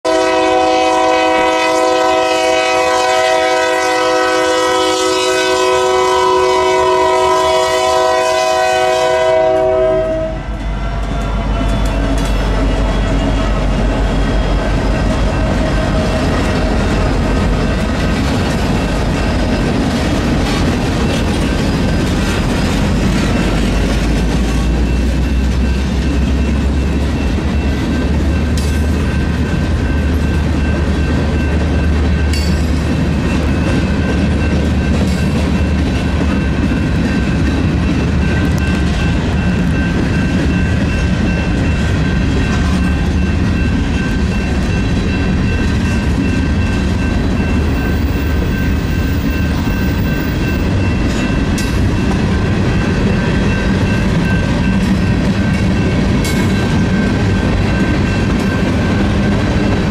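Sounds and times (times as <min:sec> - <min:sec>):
locomotive air horn: 0:00.1 - 0:11.7
train wheels clacking on rails: 0:10.5 - 0:59.9.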